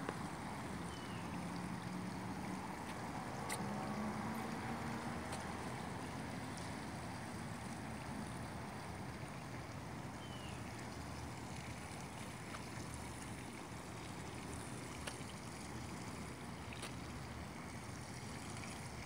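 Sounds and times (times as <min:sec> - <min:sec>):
faint ticks: 0:15.0 - 0:15.7.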